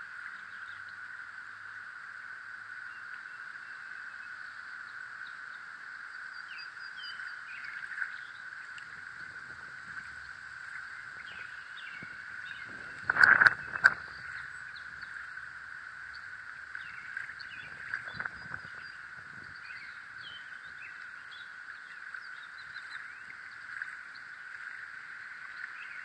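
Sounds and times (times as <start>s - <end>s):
knocks and rustling: 12.6s - 14.2s.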